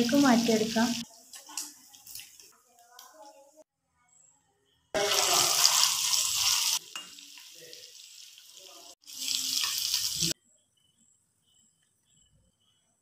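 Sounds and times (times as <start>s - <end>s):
prawns sizzling in hot oil: 0.0s - 3.5s, 5.0s - 10.4s.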